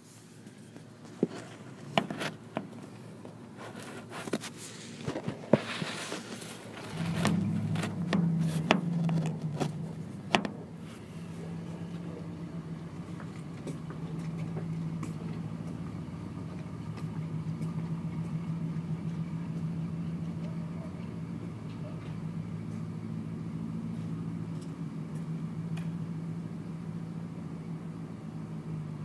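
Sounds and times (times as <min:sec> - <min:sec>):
rustling: 0:00.0 - 0:15.6
motorcycle engine idling: 0:06.9 - 0:28.1.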